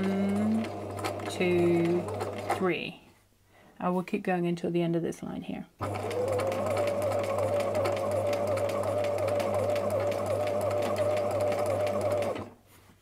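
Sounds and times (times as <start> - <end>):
sewing machine motor whine: 0.3 - 2.6, 5.8 - 12.5.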